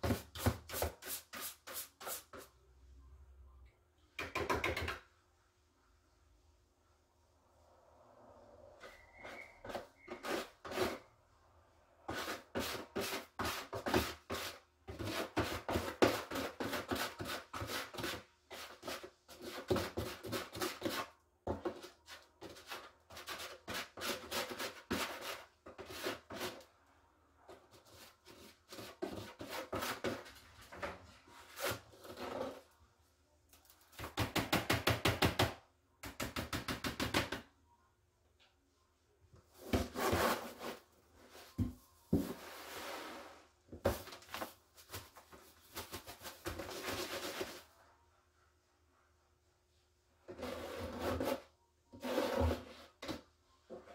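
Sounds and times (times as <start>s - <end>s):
scoop scraping through cat litter: 39.6s - 40.9s, 42.2s - 44.0s, 52.0s - 53.0s.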